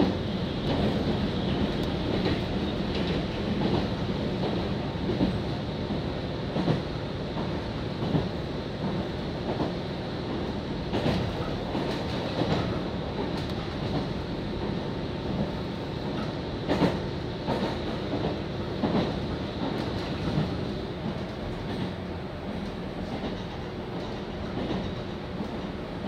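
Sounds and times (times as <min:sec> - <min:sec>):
train running noise inside carriage: 0:00.0 - 0:26.0.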